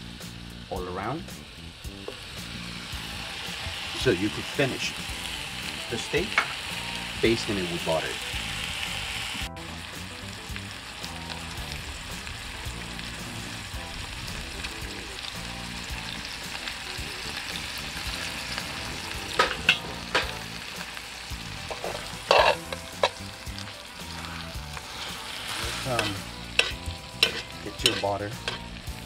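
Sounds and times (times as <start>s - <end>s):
steaks sizzling in a skillet: 0.0s - 29.0s
tongs clicking against pan: 21.7s - 23.2s, 25.9s - 28.7s.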